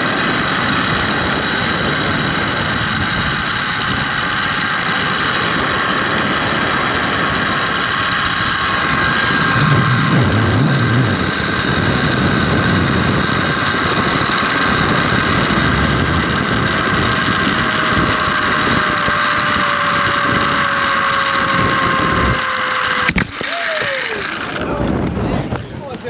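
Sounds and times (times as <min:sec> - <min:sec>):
wind rushing on microphone: 0:00.0 - 0:26.0
zip line pulleys whirring: 0:00.0 - 0:26.0
sharp click: 0:23.1 - 0:23.6.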